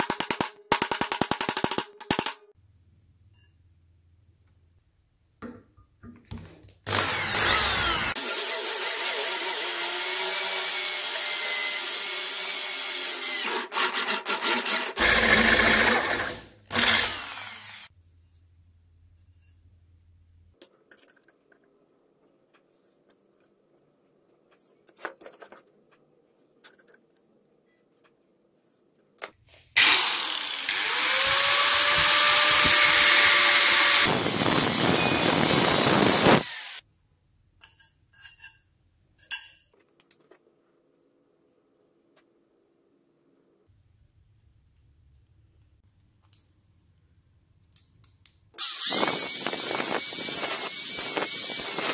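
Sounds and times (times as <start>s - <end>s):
angle grinder cutting steel: 6.9s - 17.9s, 29.8s - 36.8s, 48.6s - 51.9s
electric drill boring into steel: 6.9s - 17.9s, 29.8s - 36.8s, 48.6s - 51.9s.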